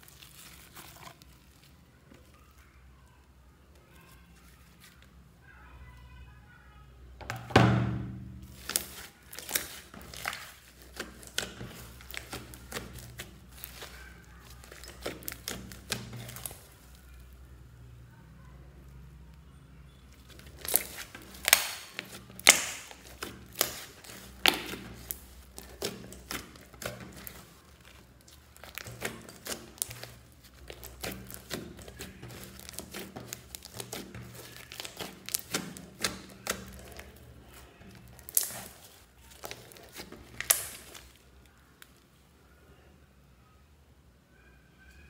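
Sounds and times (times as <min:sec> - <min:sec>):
slime wet clicks and pops: 0:20.6 - 0:25.2, 0:39.4 - 0:41.0.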